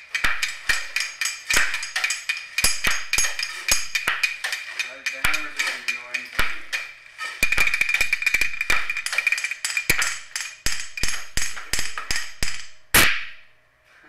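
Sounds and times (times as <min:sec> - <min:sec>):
sharp taps and clicks: 0:00.1 - 0:13.3.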